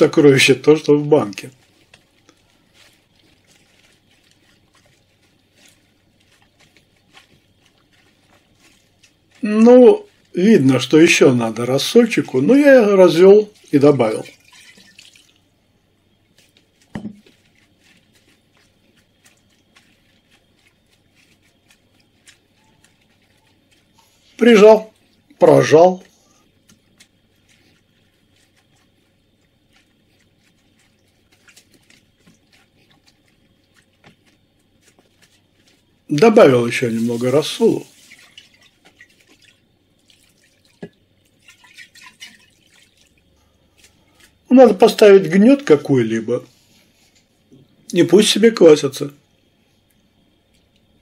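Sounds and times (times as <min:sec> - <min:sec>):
wet squishes: 0:00.0 - 0:15.6, 0:16.2 - 0:45.8
brine dripping into a pot: 0:00.0 - 0:25.4, 0:26.0 - 0:44.5
thump: 0:16.9 - 0:17.2.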